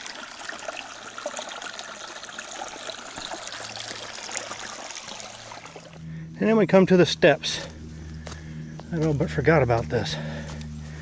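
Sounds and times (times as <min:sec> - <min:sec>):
stream running over rocks: 0:00.0 - 0:06.0.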